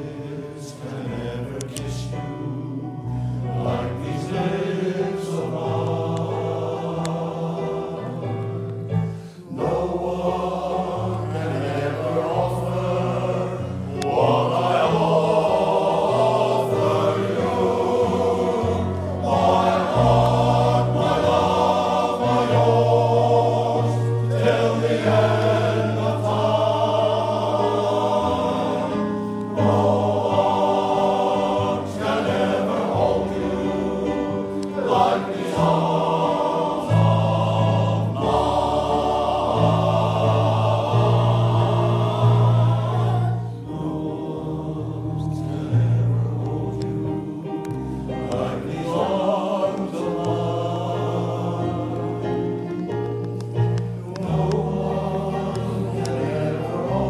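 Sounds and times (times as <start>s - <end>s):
male voice choir singing: 0.0s - 8.6s, 9.5s - 53.1s, 54.0s - 57.0s.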